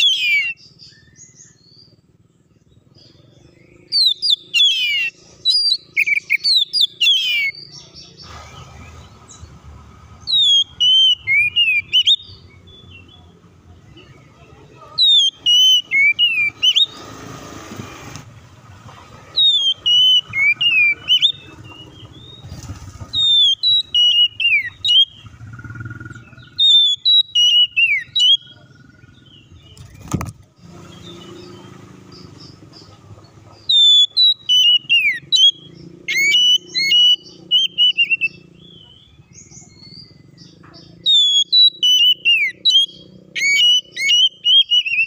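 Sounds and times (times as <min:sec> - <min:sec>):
bird singing whistled notes: 0:00.0 - 0:17.3, 0:19.3 - 0:30.2, 0:30.8 - 0:45.0.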